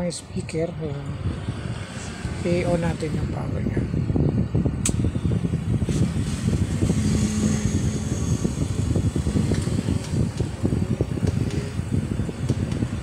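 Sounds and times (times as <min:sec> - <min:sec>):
speaker popping and crackling: 0:04.7 - 0:13.0.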